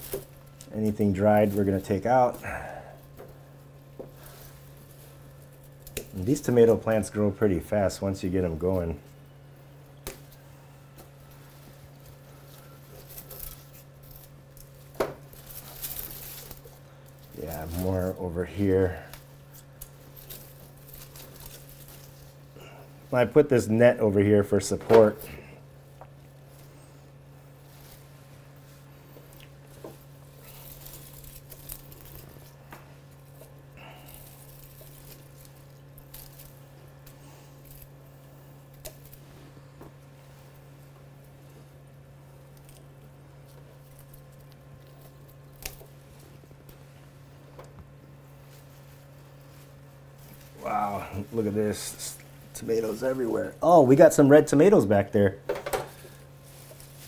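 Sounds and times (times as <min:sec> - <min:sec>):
low steady hum: 0:00.0 - 0:57.0
foliage rustling: 0:10.1 - 0:54.8, 0:56.0 - 0:57.0.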